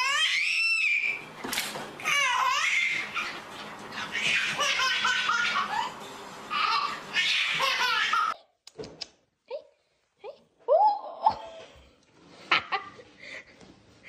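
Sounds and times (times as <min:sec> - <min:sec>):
baby laughing: 0:02.1 - 0:08.5.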